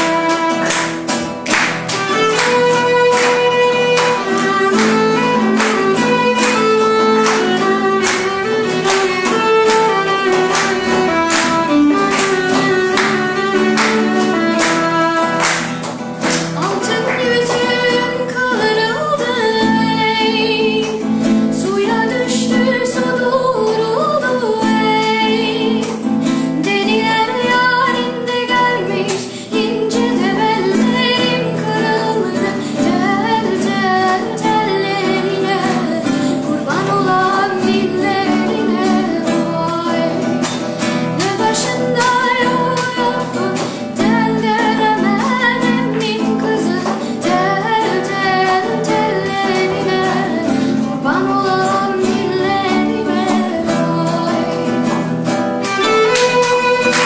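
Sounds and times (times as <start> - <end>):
violin playing: 0.0 - 15.8, 55.4 - 57.0
instrumental accompaniment: 0.0 - 57.0.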